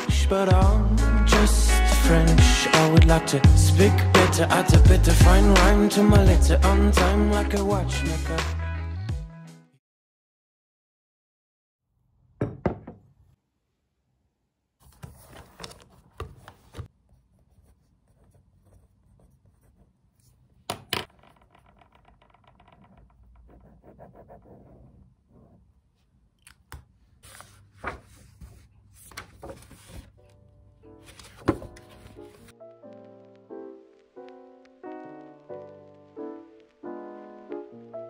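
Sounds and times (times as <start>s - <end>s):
pages rustling and flipping: 14.8s - 16.9s, 27.2s - 33.4s.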